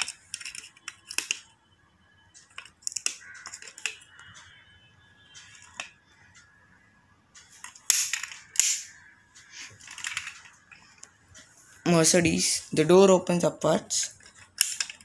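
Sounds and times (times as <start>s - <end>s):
toy car doors clicking: 0.0s - 1.5s, 2.4s - 4.4s, 7.6s - 8.9s, 9.7s - 10.8s, 14.1s - 15.0s.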